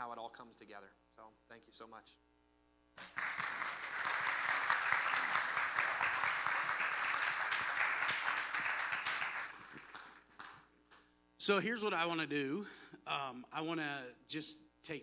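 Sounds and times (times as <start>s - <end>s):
congregation applauding: 3.0s - 10.7s.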